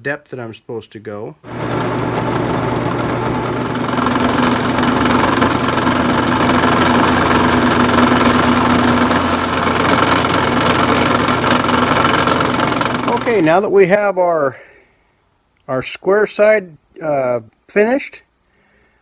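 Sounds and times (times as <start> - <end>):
drill press motor hum: 1.5 - 13.6
harsh metal cutting noise: 1.5 - 13.6.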